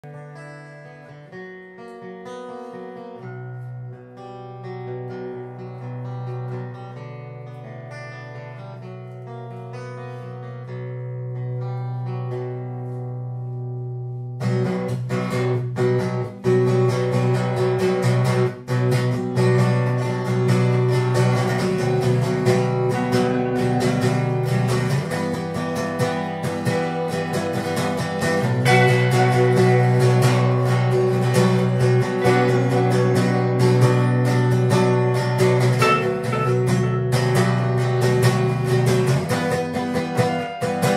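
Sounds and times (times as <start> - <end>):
guitar strumming: 0.0 - 40.9.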